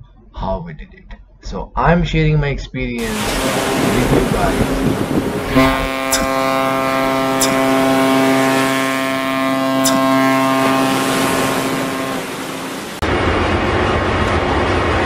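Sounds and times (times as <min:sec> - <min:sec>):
ship's horn blast: 0:03.0 - 0:13.2.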